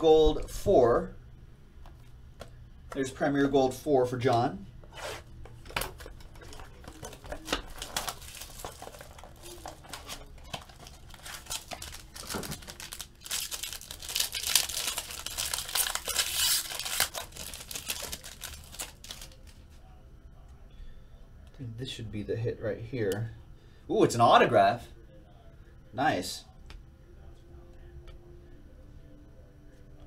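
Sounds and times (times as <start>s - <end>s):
foil pack crinkling and tearing: 5.8s - 19.6s.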